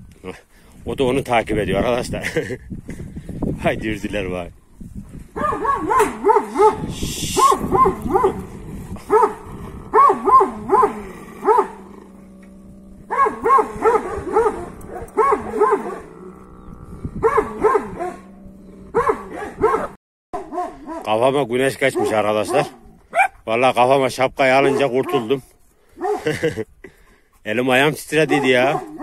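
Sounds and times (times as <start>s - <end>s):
dog barking excitedly: 5.4s - 11.8s, 13.1s - 16.1s, 17.2s - 18.2s, 18.9s - 21.2s, 21.8s - 23.4s, 24.6s - 25.3s, 26.0s - 26.3s, 28.2s - 29.0s.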